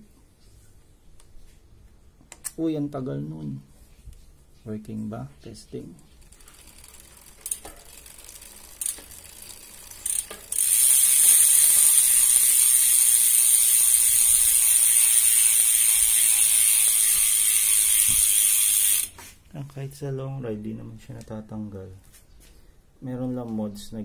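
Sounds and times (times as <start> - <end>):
bicycle freehub ratcheting buzz: 6.0 - 19.2.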